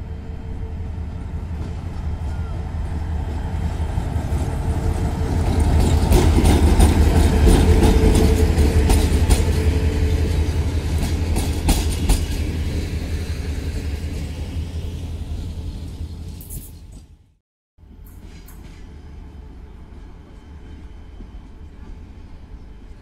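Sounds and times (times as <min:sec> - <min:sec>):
diesel locomotive engine rumble: 0:00.0 - 0:23.0
train wheels clacking over rail joints: 0:05.2 - 0:13.0.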